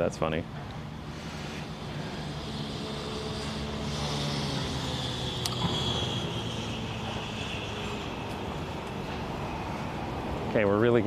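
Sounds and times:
street noise: 0.0 - 11.0
vehicle engine hum: 0.0 - 11.0
sharp click: 5.4 - 5.8.

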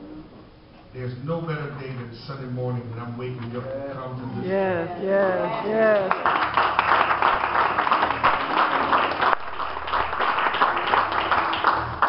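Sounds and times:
congregation applauding: 5.8 - 12.0.

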